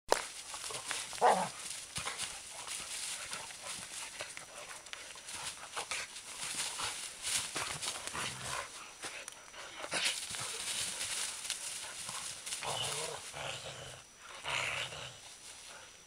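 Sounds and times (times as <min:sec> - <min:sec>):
leaves rustling and crackling: 0:00.1 - 0:09.0, 0:09.9 - 0:13.8.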